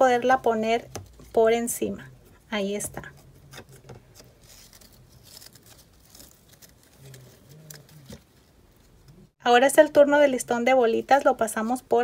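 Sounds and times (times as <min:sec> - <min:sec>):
ribbon rustling: 0:03.0 - 0:09.3.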